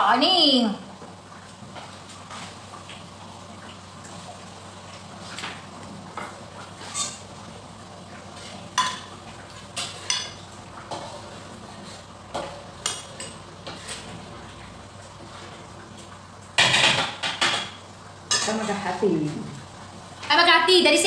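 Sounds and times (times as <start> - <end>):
faint sizzle: 0.0 - 21.0
utensil scraping and clinking wok: 6.7 - 7.3, 8.4 - 14.2, 16.6 - 19.0.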